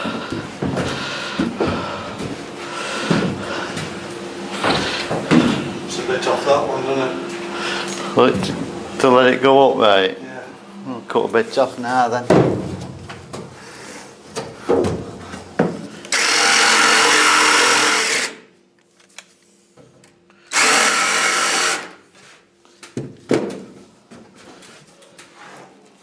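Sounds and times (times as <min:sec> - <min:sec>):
power saw cutting board: 0:16.1 - 0:18.5, 0:20.5 - 0:22.0.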